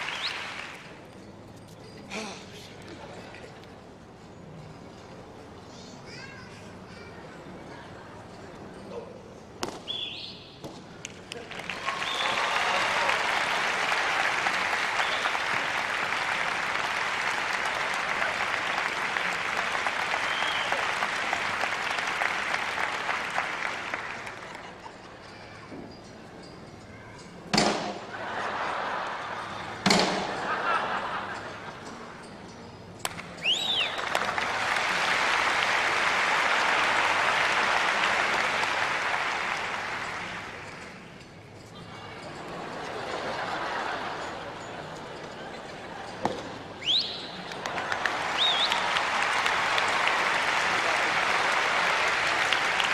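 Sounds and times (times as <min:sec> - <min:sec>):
audience applauding: 0:00.0 - 0:01.0, 0:11.3 - 0:24.8, 0:33.1 - 0:40.9, 0:46.9 - 0:52.9.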